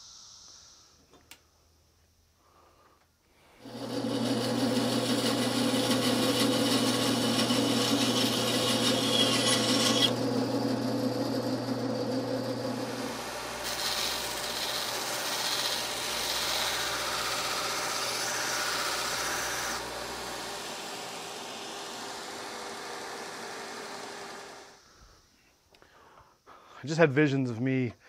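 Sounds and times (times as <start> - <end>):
band saw cutting wood: 3.6 - 24.9.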